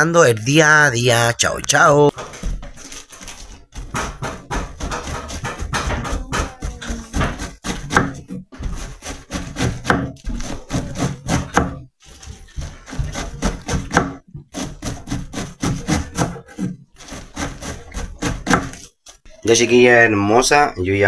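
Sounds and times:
knife slicing cabbage: 2.7 - 19.2
knife knocking on wooden board: 3.8 - 8.8.

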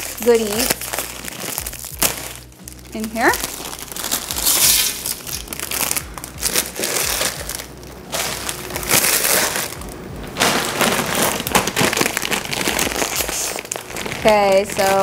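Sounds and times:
foil snack bags crinkling: 0.0 - 15.0.

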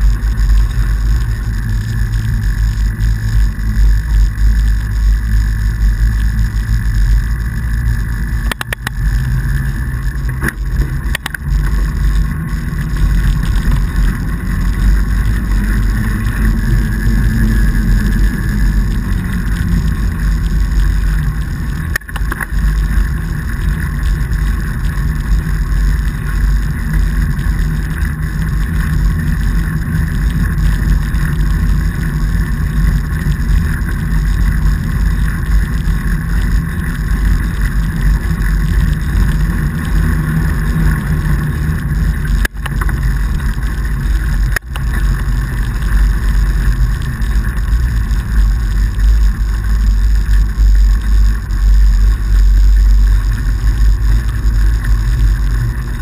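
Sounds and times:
bike tyres rolling over snow: 0.0 - 56.0.

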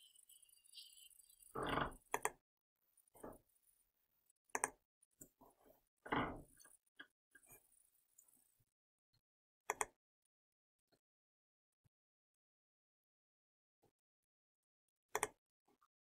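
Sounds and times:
computer mouse clicks: 1.7 - 2.4, 4.5 - 5.3, 9.7 - 10.0, 15.1 - 15.4.

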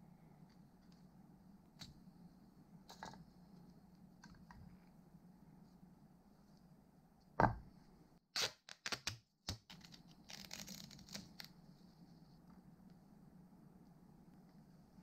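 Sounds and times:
thump: 7.4 - 7.7
duct tape ripping off roll: 8.3 - 11.5
tape crackling while cut: 8.4 - 11.6.

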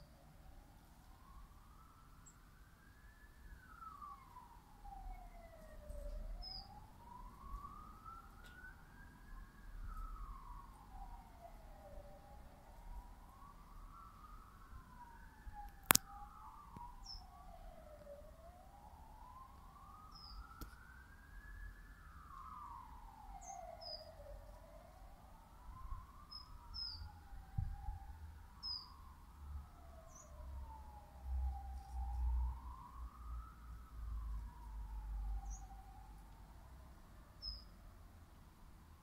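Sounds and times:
siren wailing: 0.5 - 36.8
small birds chirping: 6.4 - 6.8, 17.0 - 17.3, 20.1 - 20.5, 23.4 - 24.2, 26.3 - 27.1, 28.6 - 29.0, 30.0 - 30.4, 35.4 - 35.7, 37.4 - 37.7.

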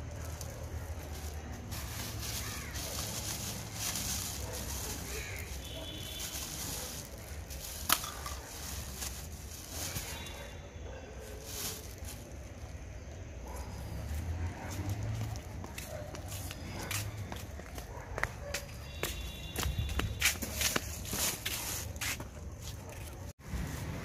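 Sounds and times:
plastic bag rustling and crinkling: 0.0 - 13.6, 19.5 - 24.0.

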